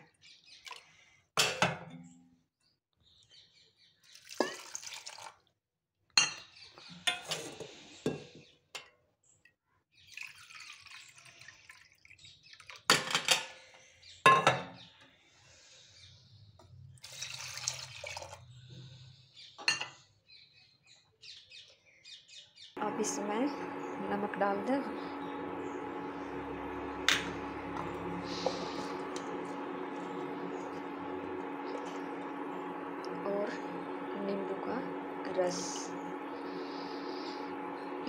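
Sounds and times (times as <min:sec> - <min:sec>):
water splashing onto rice: 0:04.1 - 0:05.4.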